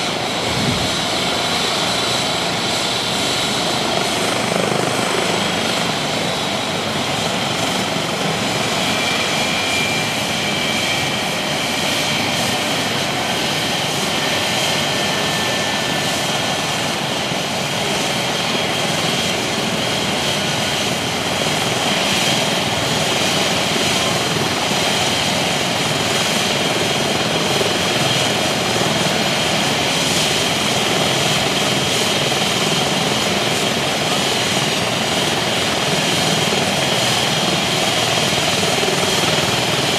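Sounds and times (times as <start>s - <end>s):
high turbine whine: 0.0s - 28.8s
helicopter rotor noise: 0.0s - 39.9s.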